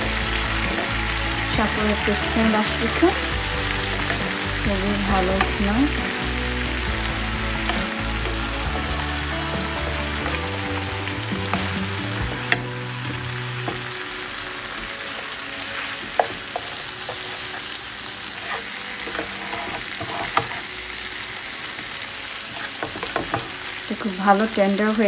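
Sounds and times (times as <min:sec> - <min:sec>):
chicken sizzling in oil: 0:00.0 - 0:25.0
spatula tapping pan: 0:16.0 - 0:17.4, 0:22.8 - 0:23.6.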